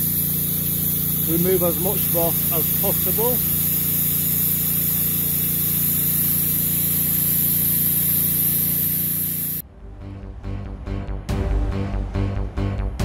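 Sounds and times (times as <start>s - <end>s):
hiss of water spray: 0.0s - 9.6s
pressure washer engine running: 0.0s - 9.6s.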